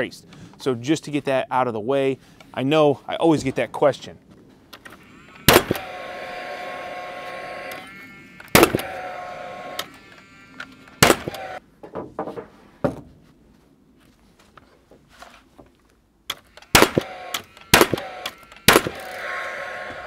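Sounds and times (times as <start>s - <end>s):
nailer fan whine: 4.8s - 11.6s, 16.5s - 20.0s
nail gun firing: 5.4s - 5.9s, 8.5s - 9.0s, 11.0s - 11.6s, 16.3s - 19.2s.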